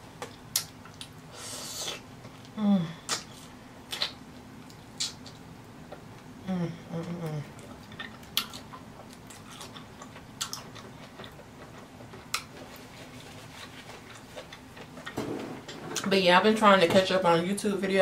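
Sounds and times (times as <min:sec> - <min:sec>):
person chewing food: 0:00.2 - 0:06.3, 0:07.2 - 0:15.2
person humming mmm: 0:01.4 - 0:03.3, 0:06.4 - 0:07.6.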